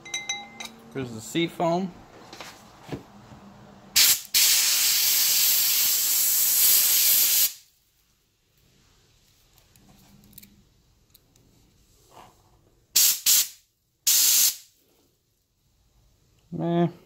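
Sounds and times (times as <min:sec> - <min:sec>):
compressed air hissing: 0:04.0 - 0:07.6, 0:13.0 - 0:14.8.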